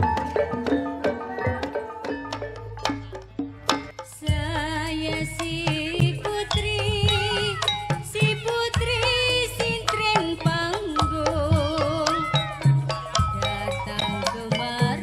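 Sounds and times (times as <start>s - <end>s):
ornamented melody: 0.0s - 4.2s.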